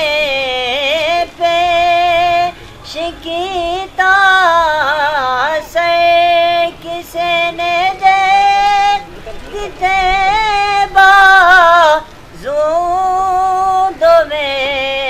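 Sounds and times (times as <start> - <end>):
man singing unaccompanied: 0.0 - 15.0.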